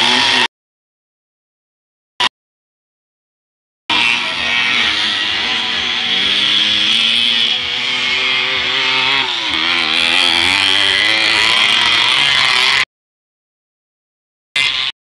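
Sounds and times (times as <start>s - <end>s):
moped engines buzzing and revving: 0.0s - 0.5s, 3.9s - 12.9s, 14.6s - 15.0s.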